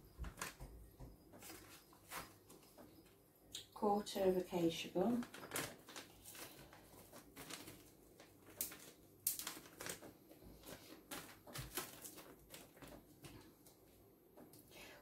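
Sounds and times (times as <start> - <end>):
powder sachet rustling: 1.4 - 3.1, 4.5 - 13.7.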